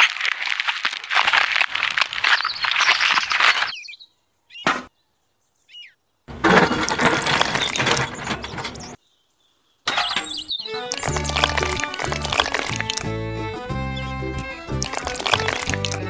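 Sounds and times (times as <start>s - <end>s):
toy cement mixer sloshing: 0.0s - 3.7s, 6.5s - 8.9s, 10.8s - 13.2s, 14.7s - 16.0s
bird chirps: 2.1s - 13.1s
scraping: 6.3s - 9.0s, 9.9s - 13.2s, 14.6s - 16.0s.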